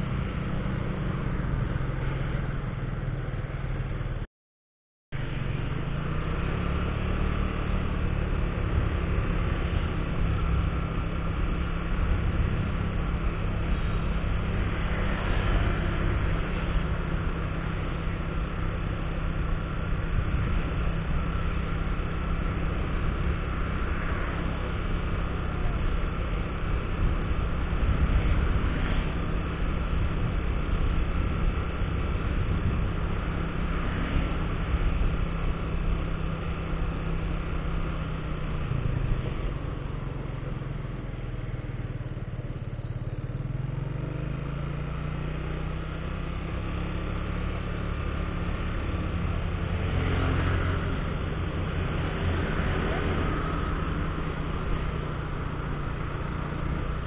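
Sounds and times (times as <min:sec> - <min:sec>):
motorcycle engine running: 0:00.0 - 0:04.2, 0:05.2 - 0:57.0
road and wind noise: 0:00.0 - 0:04.3, 0:05.1 - 0:57.0.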